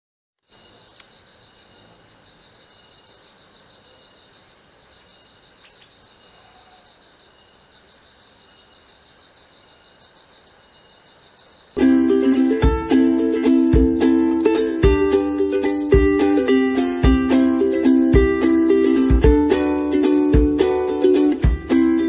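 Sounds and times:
high-pitched insect whine: 0.4s - 22.0s
pulsing insect trill: 0.4s - 22.0s
faint ticks: 5.0s - 6.0s.

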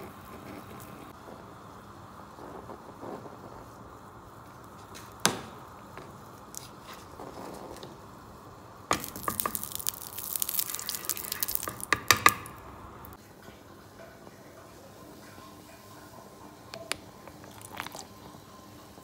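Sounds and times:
oil sizzling and crackling in pan: 5.8s - 13.2s.

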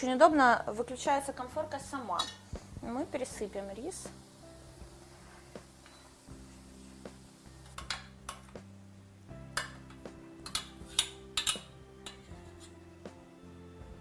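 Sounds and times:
soft background music: 0.0s - 14.0s
metal spoon clinking against pot: 10.4s - 12.4s.

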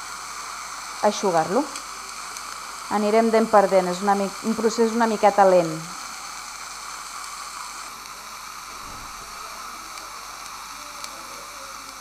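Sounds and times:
suction hiss: 0.0s - 12.0s
faint hum: 7.9s - 12.0s.

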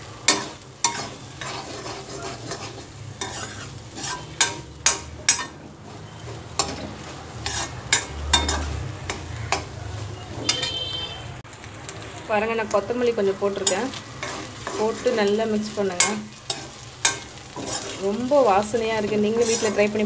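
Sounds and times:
frying sizzle: 0.0s - 20.0s
metal spoon scraping pan: 0.1s - 11.1s, 13.5s - 20.0s
spoon clinking against pan: 7.4s - 9.8s, 10.4s - 10.9s.

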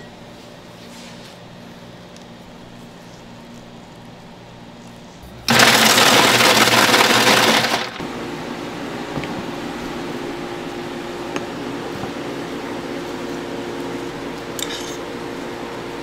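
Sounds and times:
low steady equipment hum: 0.0s - 7.0s, 7.9s - 16.0s
electric ice shaver hissing: 5.5s - 8.0s.

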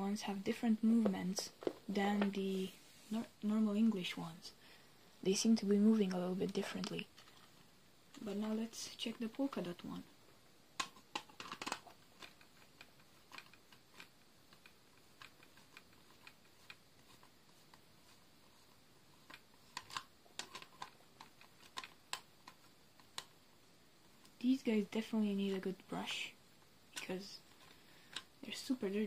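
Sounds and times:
small objects clicking and tapping: 10.8s - 17.8s, 19.2s - 23.4s.

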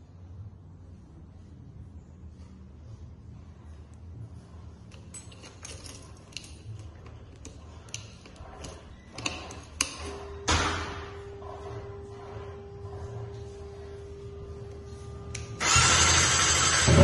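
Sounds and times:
faint steady hum: 0.0s - 16.7s
keychain jangling and clicking: 5.0s - 6.7s.

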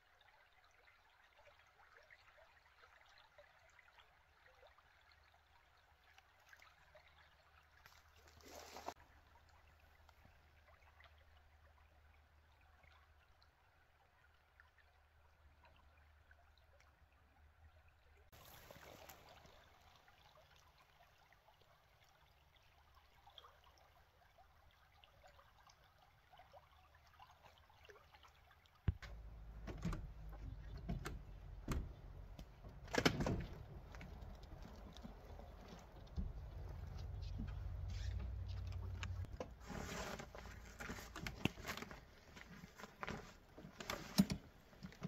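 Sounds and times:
faint stream murmur: 0.0s - 45.0s
knocks and clunks of tent: 28.9s - 42.0s.

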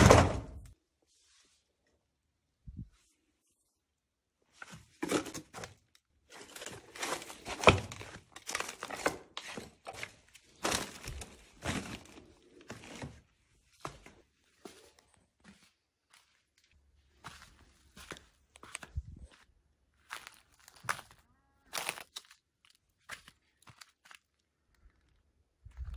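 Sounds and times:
plastic crates rustling and clattering: 4.6s - 14.2s.

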